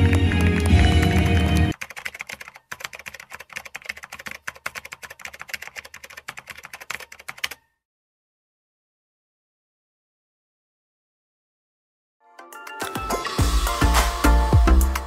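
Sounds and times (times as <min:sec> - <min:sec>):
computer keyboard typing: 0:00.0 - 0:07.7
loud music: 0:12.4 - 0:15.0.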